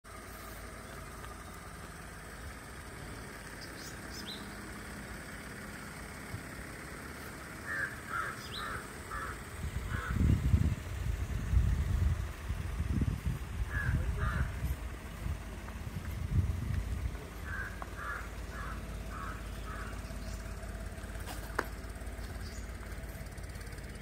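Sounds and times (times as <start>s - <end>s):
steady low rumble: 0.1s - 24.0s
crow cawing: 7.6s - 10.2s, 13.7s - 14.7s, 17.4s - 20.2s
loud low rumble: 9.1s - 21.2s.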